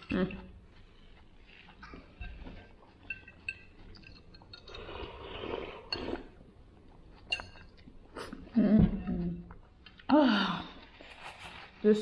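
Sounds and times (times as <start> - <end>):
metal fork clinking on glass bowl: 3.1 - 4.6
person slurping: 4.0 - 6.4.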